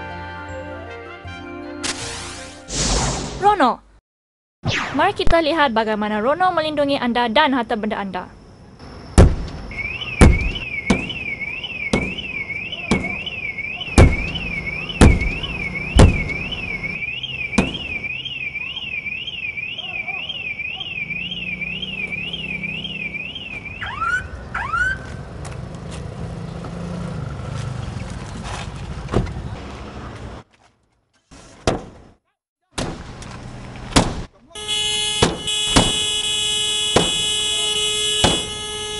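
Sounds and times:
car alarm chirps: 9.1s - 25.1s, 34.6s - 38.9s
blows striking car window: 9.2s - 13.3s, 14.0s - 16.5s, 17.6s - 18.0s, 33.9s - 37.4s, 38.1s - 38.6s
car alarm siren warbling: 9.7s - 25.1s, 34.6s - 38.9s.

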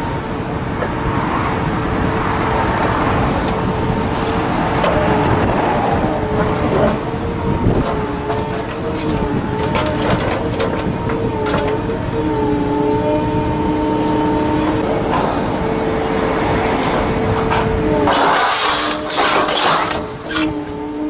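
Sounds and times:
excavator engine and hydraulics: 0.0s - 21.0s
metallic cracks and snaps: 16.8s - 20.5s.

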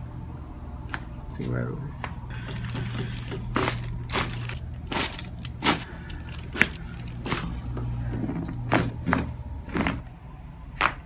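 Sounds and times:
low hum: 0.0s - 10.8s.

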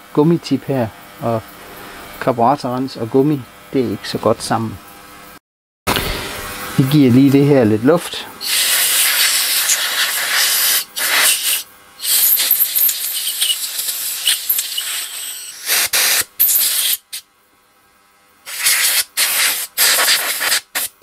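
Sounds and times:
compressed air blow gun hissing: 8.0s - 17.2s, 18.5s - 21.0s.

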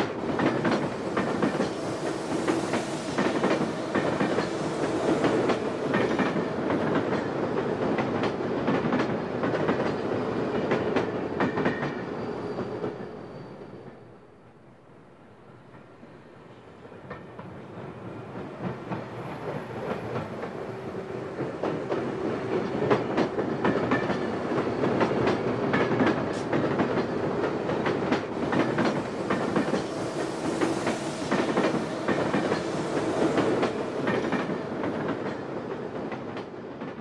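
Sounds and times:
train wheels clattering over rail joints: 0.0s - 12.6s, 21.3s - 37.0s.

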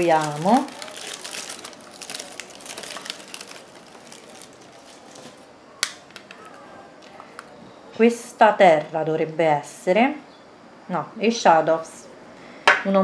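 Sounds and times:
packing paper crinkling: 0.0s - 7.5s.

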